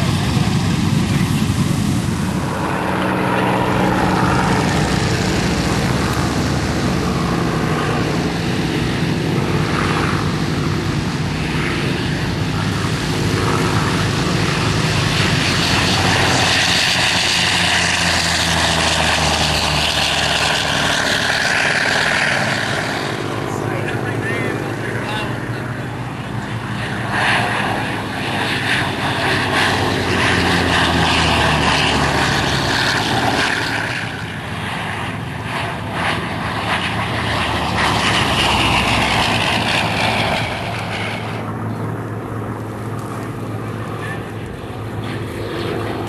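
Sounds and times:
propeller plane engine drone: 0:00.0 - 0:46.0.

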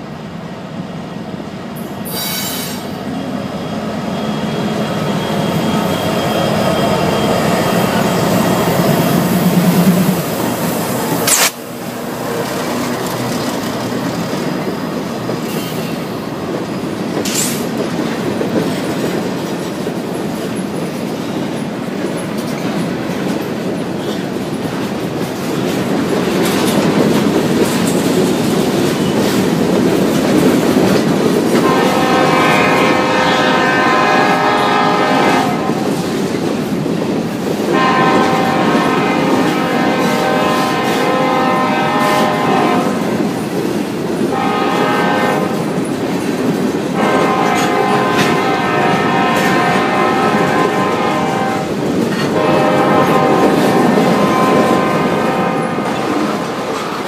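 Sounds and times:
diesel locomotives passing: 0:00.0 - 0:57.0
wheels clattering over rail joints: 0:11.0 - 0:32.8.

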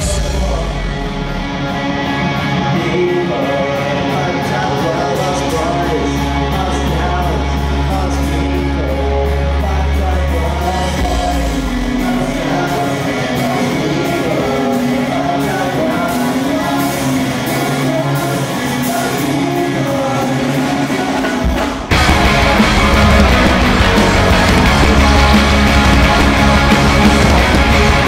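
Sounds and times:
deep bass note: 0:00.0 - 0:02.5, 0:21.9 - 0:28.0
person singing: 0:00.0 - 0:28.0
rock band playing: 0:00.0 - 0:28.0.

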